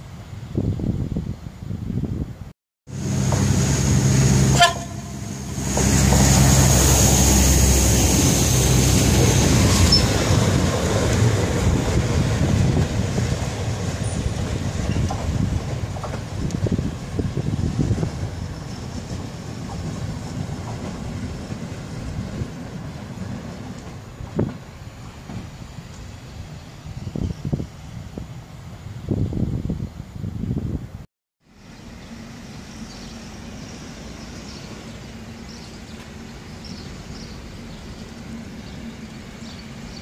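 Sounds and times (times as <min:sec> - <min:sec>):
rail vehicle diesel engine: 0:00.0 - 0:40.0.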